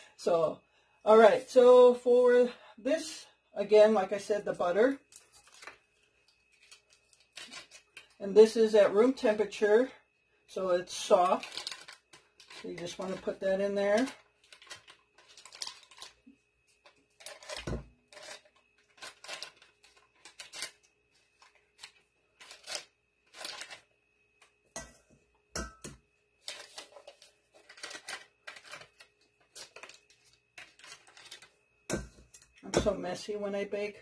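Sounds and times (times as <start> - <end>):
paper wrapper crinkling: 5.1 - 8.2, 11.3 - 13.3, 14.0 - 23.9, 26.4 - 31.5.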